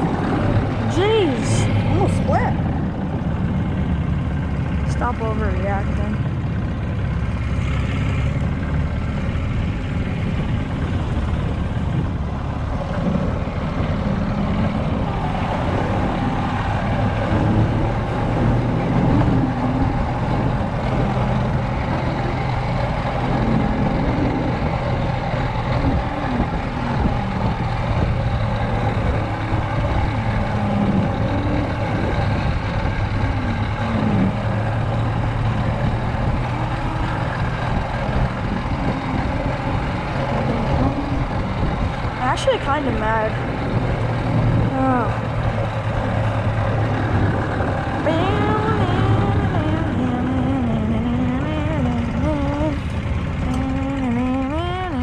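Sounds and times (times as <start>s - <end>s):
golf cart motor hum: 0.0s - 55.0s
rough ride rumble: 0.0s - 55.0s.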